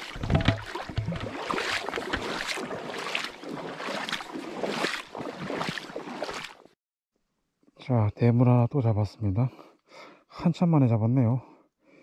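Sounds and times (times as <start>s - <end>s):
seawater splashing around wading legs: 0.0s - 6.8s.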